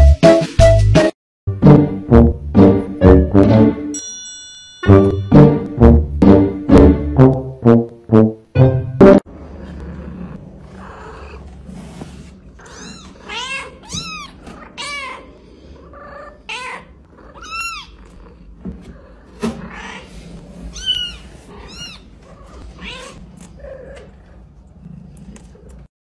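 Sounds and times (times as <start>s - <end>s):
kitten mewing: 12.6s - 15.3s, 16.0s - 18.2s.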